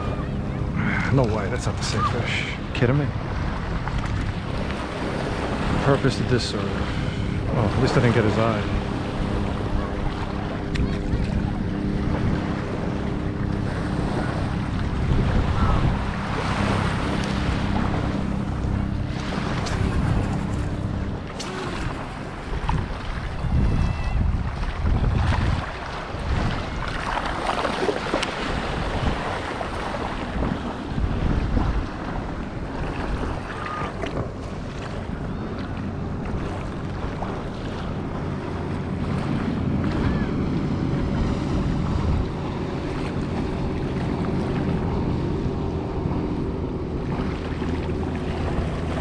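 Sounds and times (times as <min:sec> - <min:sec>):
motorboat engine hum: 0:00.0 - 0:49.0
small waves washing: 0:00.0 - 0:49.0
wind buffeting microphone: 0:00.0 - 0:49.0.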